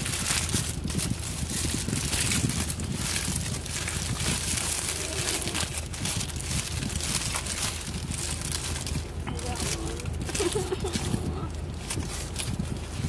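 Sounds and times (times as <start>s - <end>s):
paper wrapper crinkling: 0.0s - 13.0s.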